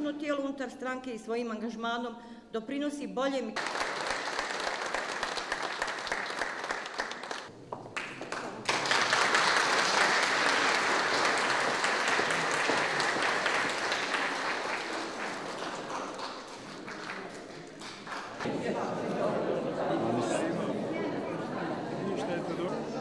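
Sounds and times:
audience applauding: 3.6 - 18.5.

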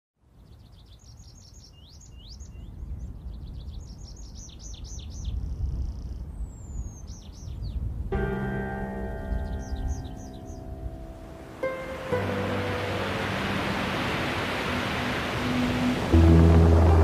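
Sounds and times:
songbirds chirping: 0.2 - 16.9
low rumble: 13.0 - 17.0.

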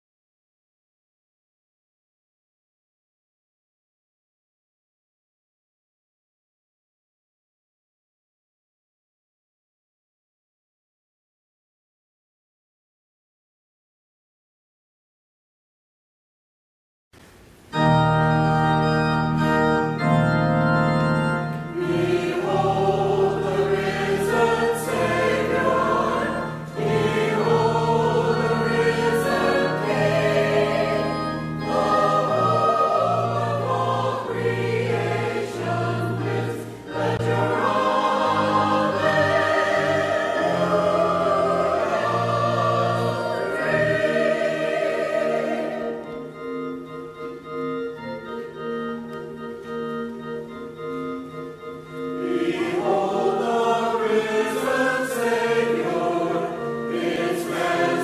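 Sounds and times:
low organ notes: 17.3 - 58.0
choir singing: 19.9 - 46.6, 52.1 - 58.0.

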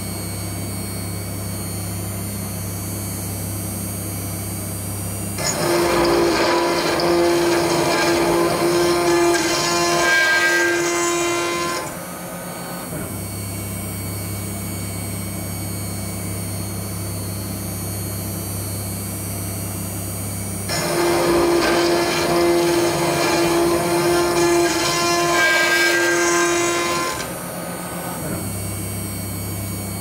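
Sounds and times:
router spindle whine: 0.0 - 30.0
harsh metal cutting noise: 5.4 - 13.5, 20.6 - 30.0.

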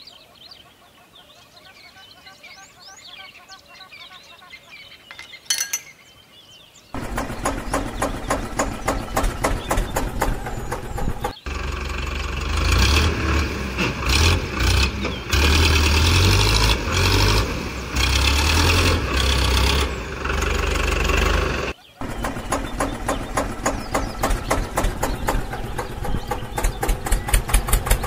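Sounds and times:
tractor engine starting: 7.0 - 28.0.

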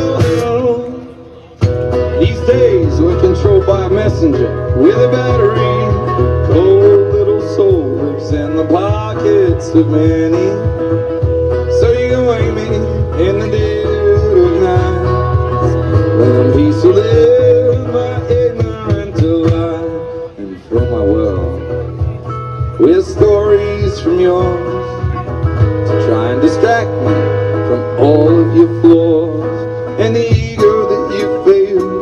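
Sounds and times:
person singing: 0.0 - 10.8, 11.5 - 25.2, 25.8 - 32.0
low bass: 0.0 - 32.0
resonator guitar playing: 0.0 - 32.0.

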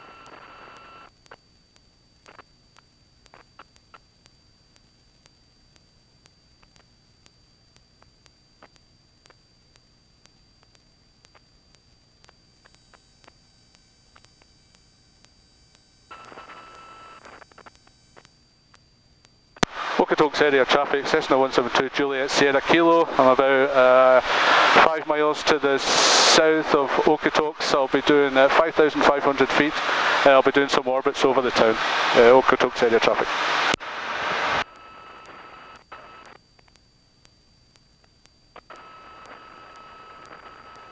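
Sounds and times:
irregular radio clicks: 0.0 - 25.6, 26.4 - 40.9
faint electrical hiss: 0.0 - 40.9
radio static with steady tone: 0.0 - 40.9
faint regular ticks: 0.1 - 19.7, 34.6 - 40.9.

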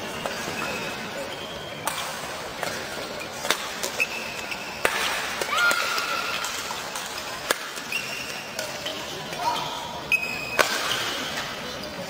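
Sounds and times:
shoes squeaking on court floor: 0.0 - 5.3, 6.0 - 12.0
racket hitting shuttlecock: 1.8 - 8.7, 10.5 - 11.2.

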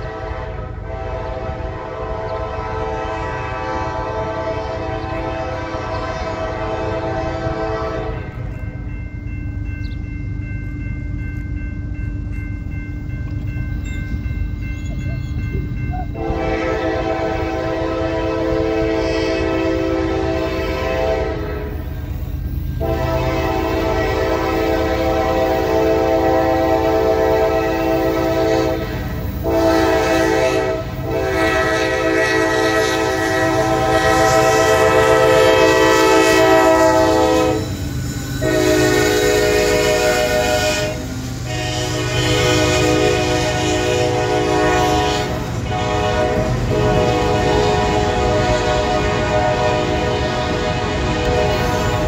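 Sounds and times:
locomotive air horn blasts: 0.0 - 8.6, 16.1 - 22.0, 22.8 - 37.8, 38.4 - 52.0
train rumbling on rails: 0.0 - 52.0.

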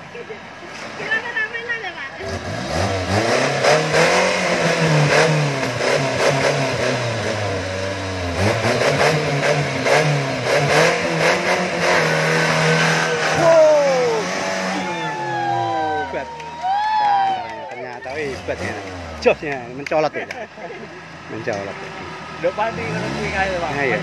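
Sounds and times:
engine revving hard: 2.2 - 16.0, 18.0 - 19.7, 22.2 - 24.0.

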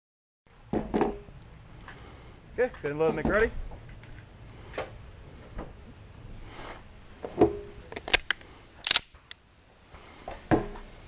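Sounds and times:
firearm metallic clicks: 7.9 - 9.4.

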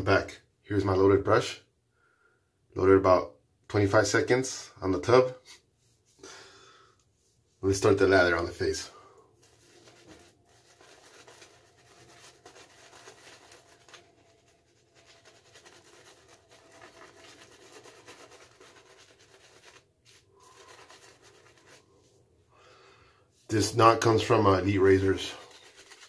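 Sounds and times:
shaving brush rubbing on face: 9.4 - 22.2, 24.0 - 26.0.

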